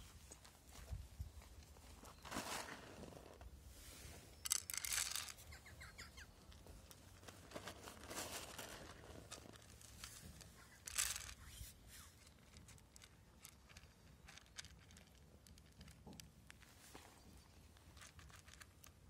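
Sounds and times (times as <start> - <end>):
cat crunching dry kibble: 6.9 - 11.5, 12.2 - 16.9, 17.7 - 19.0.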